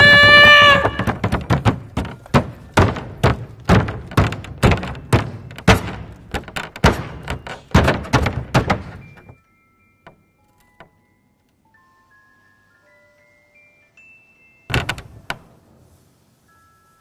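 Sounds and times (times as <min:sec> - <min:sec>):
shoes knocking on wooden table: 0:00.7 - 0:09.0.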